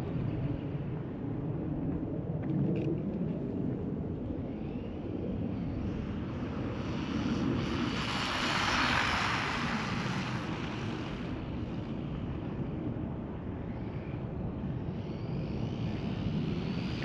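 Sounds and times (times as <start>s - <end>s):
rc car motor whine: 6.3s - 11.3s.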